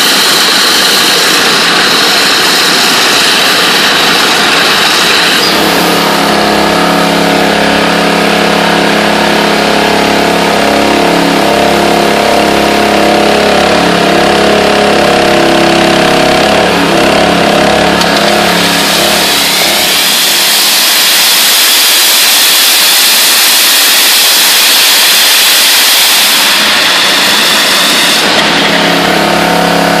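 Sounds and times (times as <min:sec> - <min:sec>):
water jet hissing: 0:00.0 - 0:11.7, 0:17.8 - 0:30.0
steady pitched hum: 0:00.0 - 0:30.0.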